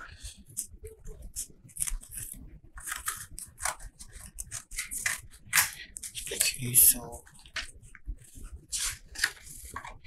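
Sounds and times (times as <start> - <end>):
scissors cutting cardboard: 1.3 - 6.1.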